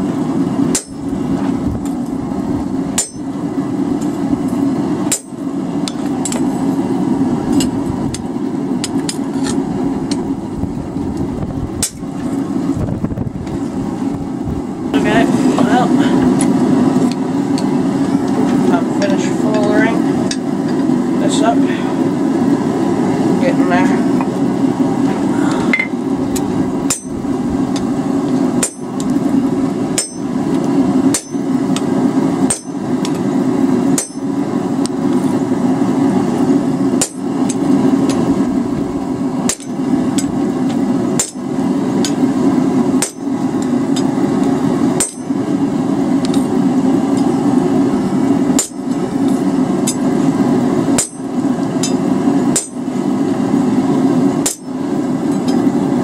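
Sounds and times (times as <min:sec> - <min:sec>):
hammer striking hot steel on anvil: 0:00.7 - 0:01.1, 0:02.9 - 0:03.4, 0:05.1 - 0:06.5, 0:11.8 - 0:12.1, 0:25.7 - 0:27.9, 0:28.6 - 0:29.2, 0:29.9 - 0:30.4, 0:31.1 - 0:33.2, 0:33.9 - 0:34.4, 0:37.0 - 0:38.2, 0:39.4 - 0:42.2, 0:43.0 - 0:44.2, 0:45.0 - 0:45.4, 0:48.5 - 0:50.1, 0:50.9 - 0:52.8, 0:54.4 - 0:55.7.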